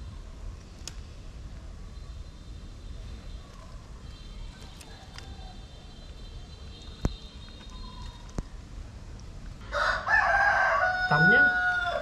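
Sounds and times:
low background noise: 0.0s - 12.0s
rooster crowing: 9.6s - 12.0s.

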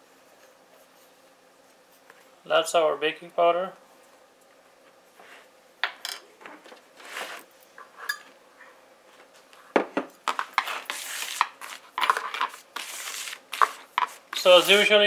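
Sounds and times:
flour rustling in plastic bowl: 10.3s - 15.0s.

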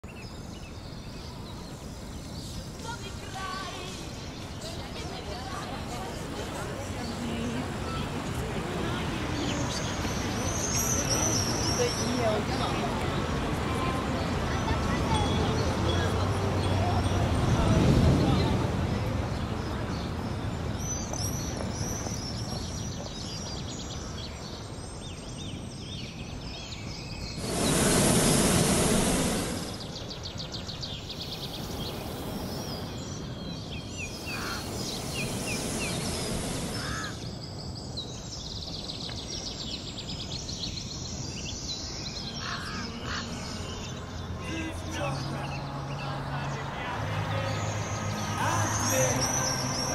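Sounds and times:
small birds chirping: 0.0s - 49.9s
propane burner blast: 27.4s - 30.1s, 34.1s - 37.3s
crows cawing: 36.8s - 37.3s.

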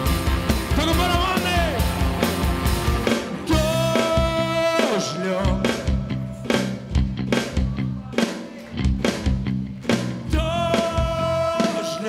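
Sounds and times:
live rock band playing: 0.0s - 12.0s.

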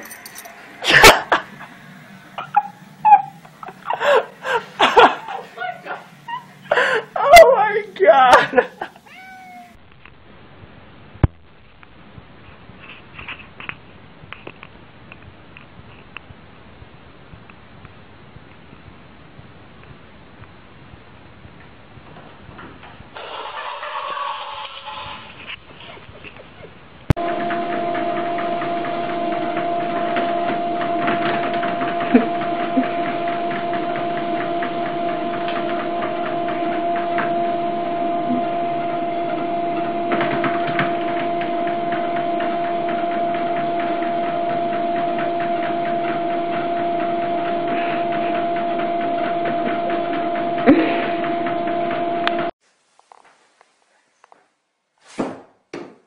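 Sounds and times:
treadmill motor whine: 0.0s - 7.5s, 27.1s - 52.6s
treadmill belt hiss: 27.2s - 54.4s.

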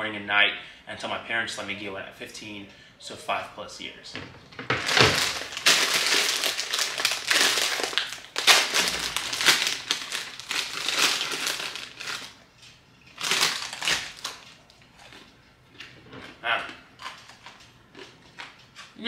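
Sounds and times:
chip bag crinkling: 4.7s - 12.5s, 13.1s - 15.3s, 17.0s - 18.6s.

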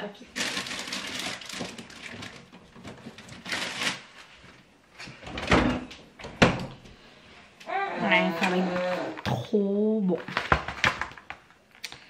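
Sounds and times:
rustling in refrigerator: 0.2s - 6.9s.

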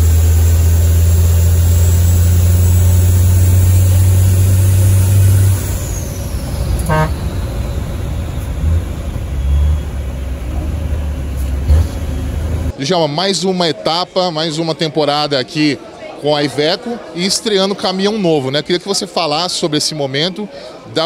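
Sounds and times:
diesel truck engine droning: 0.0s - 12.8s
brief high toot: 6.4s - 8.5s.

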